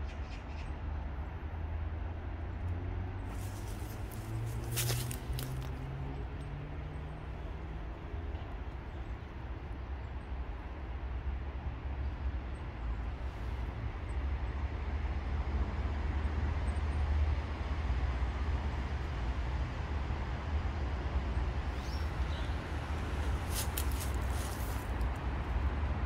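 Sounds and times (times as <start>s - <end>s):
low outdoor rumble: 2.2s - 10.7s, 17.5s - 26.0s.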